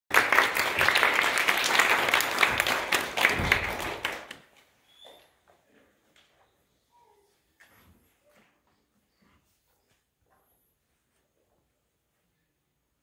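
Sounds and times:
audience applauding: 0.1 - 4.5.

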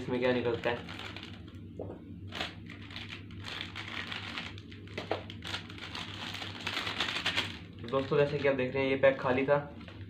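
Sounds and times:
plastic packet crinkling: 0.4 - 1.6, 2.3 - 8.7.

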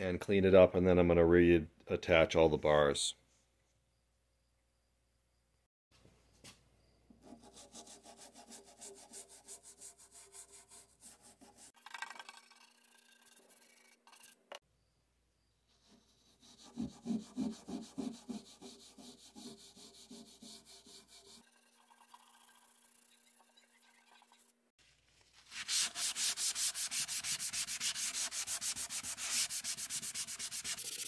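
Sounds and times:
toothbrush scrubbing plastic: 25.5 - 31.0.

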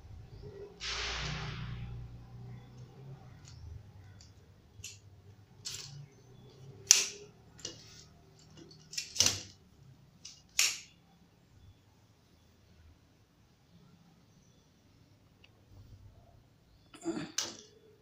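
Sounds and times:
telescoping pole clicks and snaps: 6.9 - 7.8, 10.2 - 10.9.

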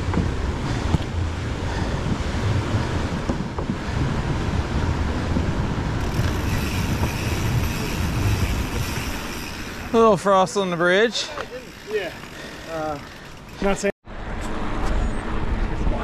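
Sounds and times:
wind buffeting microphone: 0.0 - 10.5
tyres rolling on trail: 4.7 - 13.9.

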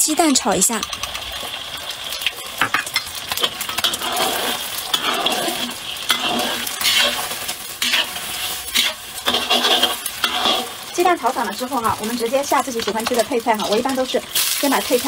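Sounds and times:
eggs sizzling in hot oil: 0.0 - 15.0
spatula scraping a pan: 3.4 - 15.0.

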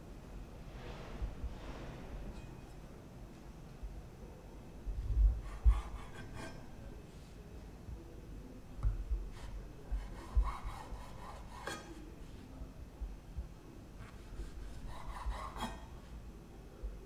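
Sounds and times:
knife sawing through bread: 5.4 - 6.6, 9.4 - 12.0, 14.0 - 16.1.

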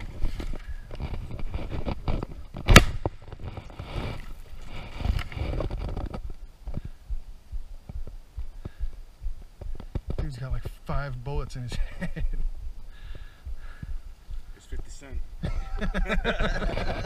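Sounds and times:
knocking and scraping in boat: 0.0 - 6.3
sharp loud crack: 2.6 - 3.3.

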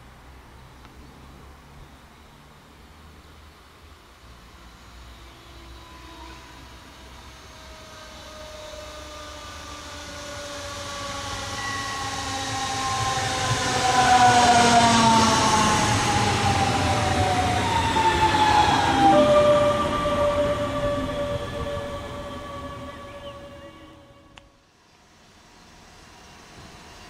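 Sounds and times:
electric train whining: 4.0 - 27.0
train wheels rumbling on rails: 5.6 - 24.4.

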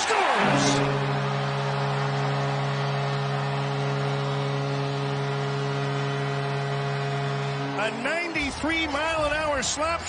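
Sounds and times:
arena goal horn: 0.0 - 9.6
crowd cheering: 0.0 - 10.0.

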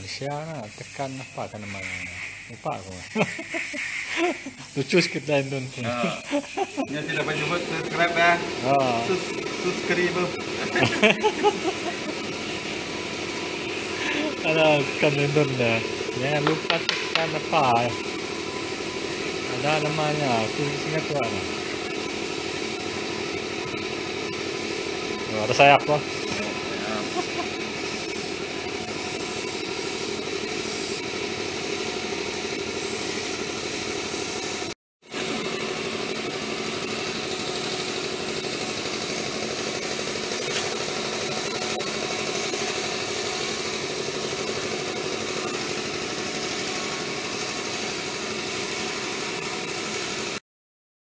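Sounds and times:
airbrush spraying hiss: 0.0 - 34.7, 36.3 - 50.2
air compressor running: 0.0 - 50.4.

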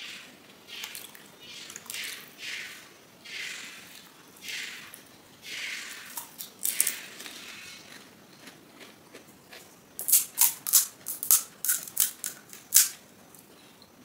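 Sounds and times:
crisp shells crunching: 6.2 - 13.0.

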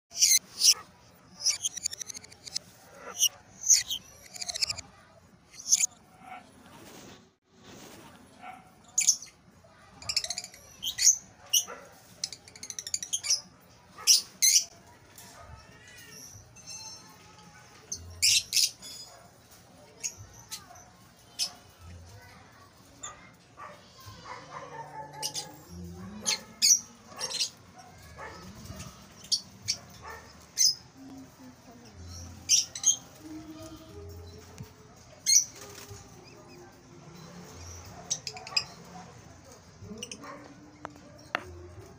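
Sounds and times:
chattering clicks: 0.1 - 4.9, 5.5 - 5.9
lovebirds chirping: 0.1 - 6.0.

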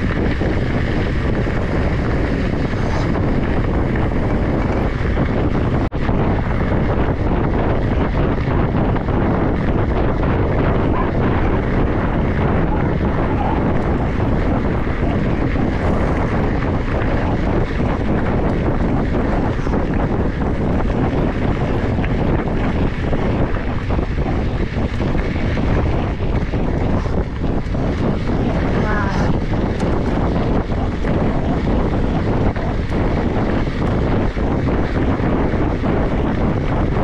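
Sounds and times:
wind rumble on microphone: 0.0 - 37.0.

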